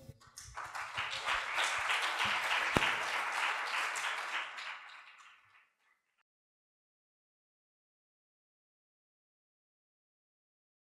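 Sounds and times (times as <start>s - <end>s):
audience applauding: 0.2s - 5.8s.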